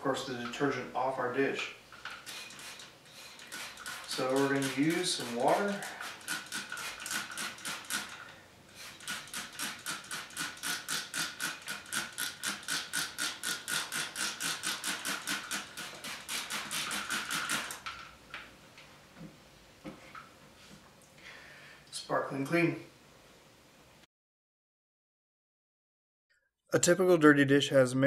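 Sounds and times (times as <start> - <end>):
spray bottle squirting: 2.0 - 17.9.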